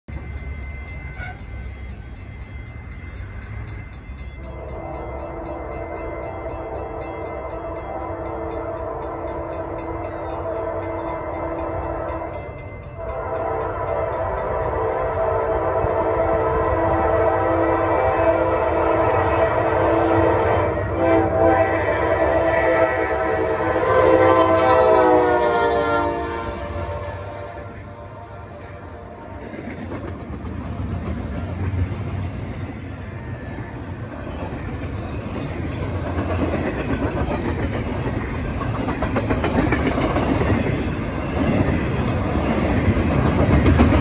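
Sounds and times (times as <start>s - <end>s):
low rumble of train: 0.1s - 44.0s
locomotive air horn blasts: 4.6s - 29.4s.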